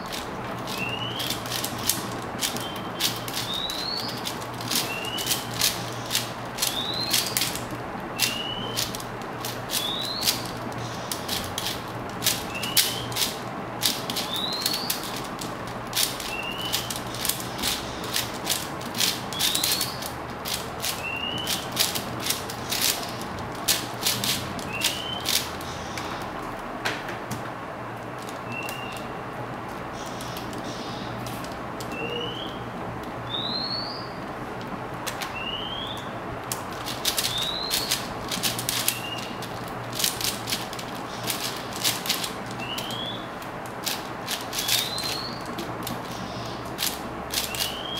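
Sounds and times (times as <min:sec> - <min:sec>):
puzzle cube clicking: 0:00.1 - 0:25.6, 0:36.8 - 0:43.0, 0:46.8 - 0:47.8
bird chirping: 0:00.7 - 0:01.5, 0:02.5 - 0:04.2, 0:04.8 - 0:07.5, 0:08.2 - 0:08.9, 0:09.7 - 0:11.1, 0:12.5 - 0:13.2, 0:14.2 - 0:15.1, 0:16.3 - 0:16.9, 0:19.3 - 0:20.1, 0:21.0 - 0:21.7, 0:24.7 - 0:26.1, 0:28.4 - 0:29.2, 0:31.9 - 0:32.7, 0:33.3 - 0:34.2, 0:35.3 - 0:36.1, 0:37.3 - 0:38.1, 0:38.9 - 0:39.4, 0:42.6 - 0:43.4, 0:44.6 - 0:45.5, 0:47.4 - 0:47.9.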